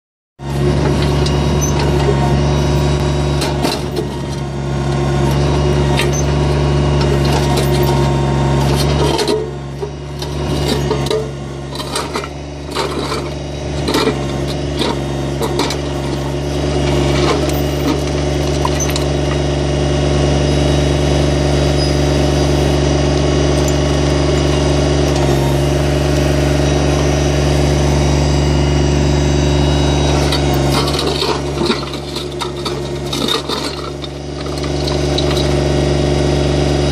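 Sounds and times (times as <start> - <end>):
diesel engine running: 0.4 - 36.9
bucket scraping and knocking rocks: 7.0 - 19.4, 30.2 - 35.7.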